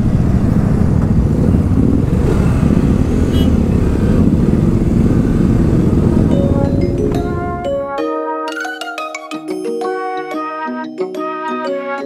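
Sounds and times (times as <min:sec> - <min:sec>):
motorcycle engines idling: 0:00.0 - 0:07.9.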